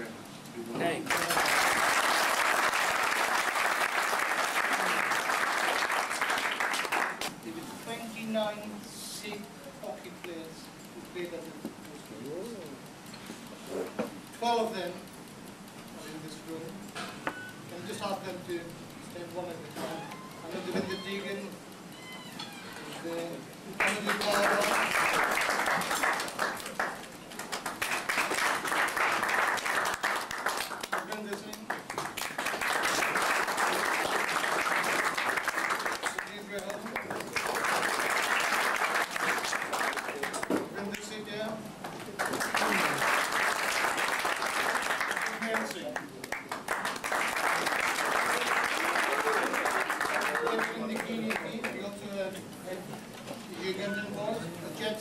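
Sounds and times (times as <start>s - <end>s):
audience applauding: 0.9s - 7.3s, 23.8s - 40.6s, 42.1s - 51.8s.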